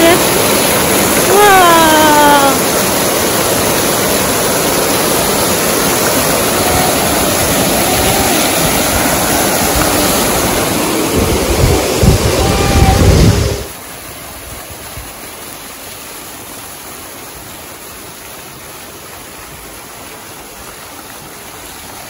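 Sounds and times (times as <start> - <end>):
fountain water splashing: 0.0 - 22.0
low rumble: 6.5 - 13.7.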